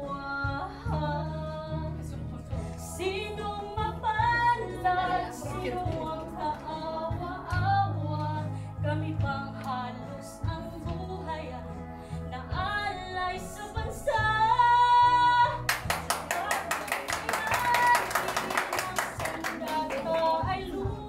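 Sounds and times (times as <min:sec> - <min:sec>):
musical accompaniment: 0:00.0 - 0:21.0
woman singing: 0:00.0 - 0:21.0
audience applause: 0:15.7 - 0:20.4.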